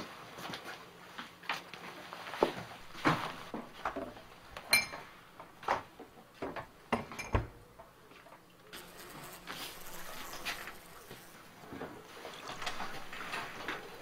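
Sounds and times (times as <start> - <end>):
crockery and cutlery clinking: 4.7 - 5.1, 6.9 - 7.5.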